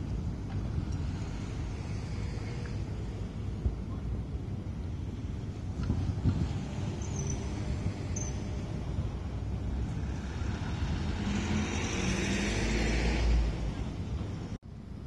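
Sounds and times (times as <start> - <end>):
road traffic: 0.0 - 15.0
truck passing: 6.2 - 14.6.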